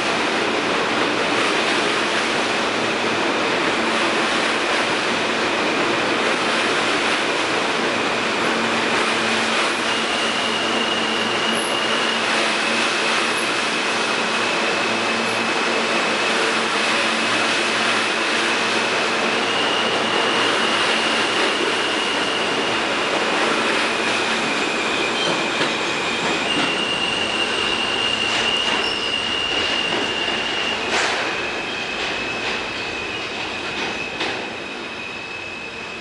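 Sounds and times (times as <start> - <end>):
subway train wheels rumbling: 0.0 - 36.0
high wheel squeal: 8.8 - 36.0.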